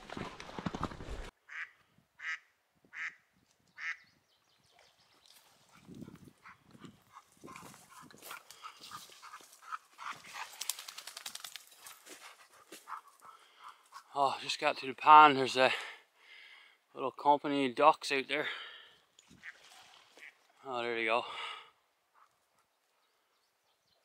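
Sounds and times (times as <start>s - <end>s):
footsteps through brush: 0.0s - 1.3s, 5.2s - 14.0s
ducks quacking: 1.5s - 2.4s, 5.7s - 10.3s, 19.4s - 20.4s.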